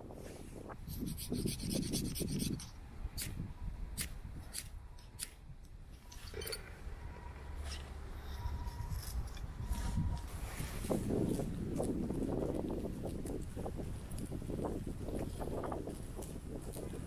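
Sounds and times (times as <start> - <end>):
rough rasping strokes: 0.2 - 3.3, 6.0 - 11.9.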